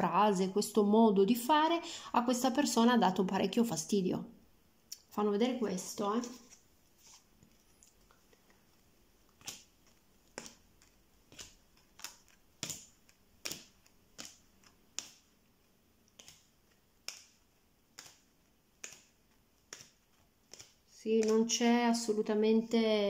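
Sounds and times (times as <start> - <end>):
playing cards snapping on table: 9.4 - 9.7, 10.3 - 15.3, 16.1 - 21.4.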